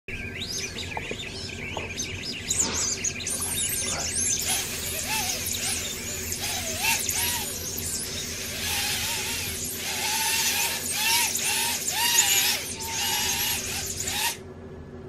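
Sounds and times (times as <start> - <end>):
drone motors whining: 0.2 - 14.4.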